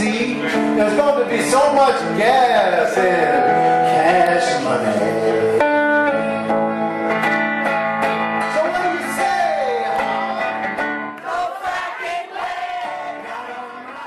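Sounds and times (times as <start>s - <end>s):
guitar-backed song: 0.0s - 14.0s.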